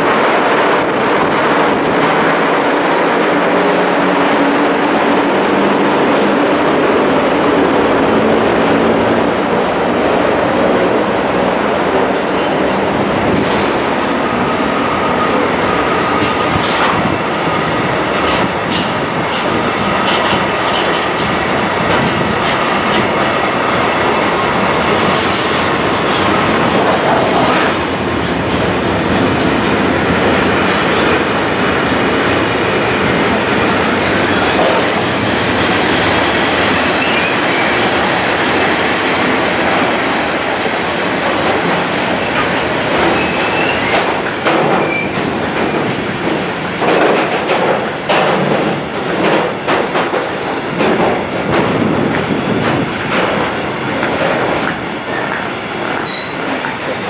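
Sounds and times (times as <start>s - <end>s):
train wheels rolling on rails: 0.0s - 57.0s
high wheel squeals: 36.8s - 37.8s, 43.1s - 44.0s, 56.0s - 56.5s.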